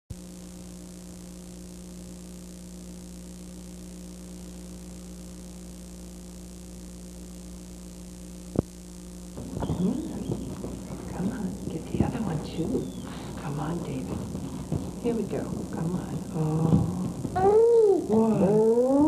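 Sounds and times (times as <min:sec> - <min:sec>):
electrical hum: 0:00.1 - 0:19.0
busy room sound: 0:08.6 - 0:19.0.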